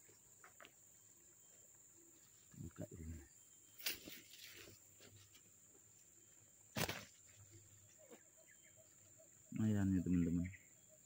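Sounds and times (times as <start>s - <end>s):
fish thumping in grass: 6.7s - 7.2s.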